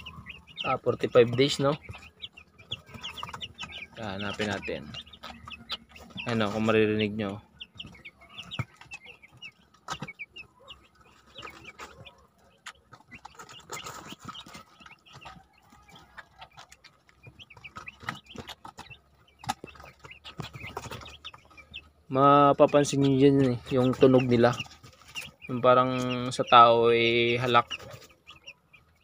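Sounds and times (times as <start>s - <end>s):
chicks peeping: 0.0s - 29.0s.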